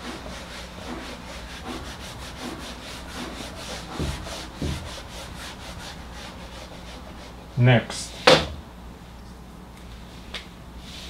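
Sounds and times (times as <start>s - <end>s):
eraser scrubbing whiteboard: 0.0s - 7.6s
dull thumps: 0.8s - 6.2s.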